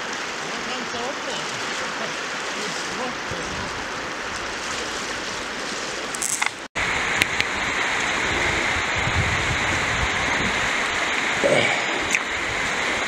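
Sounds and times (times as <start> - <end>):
river flowing over stones: 0.0 - 13.0.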